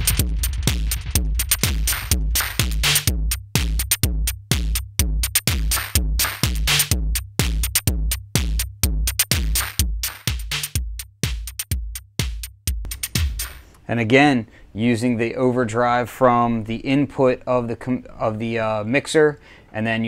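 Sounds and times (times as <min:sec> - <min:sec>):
kick drum: 0:00.0 - 0:13.6
hi-hat ticks: 0:00.0 - 0:13.9.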